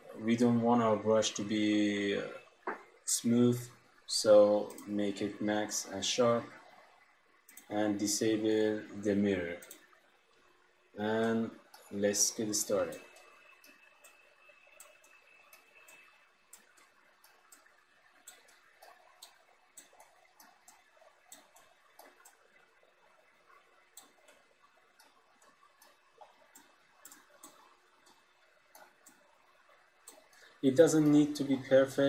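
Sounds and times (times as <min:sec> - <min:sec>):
computer mouse clicks: 0:04.6 - 0:05.3, 0:07.5 - 0:07.8, 0:09.6 - 0:10.5, 0:11.2 - 0:31.6.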